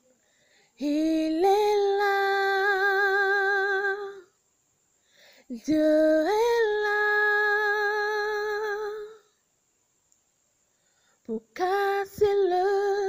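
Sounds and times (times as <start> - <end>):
woman singing unaccompanied: 0.7 - 4.4, 5.5 - 9.4, 11.2 - 13.0.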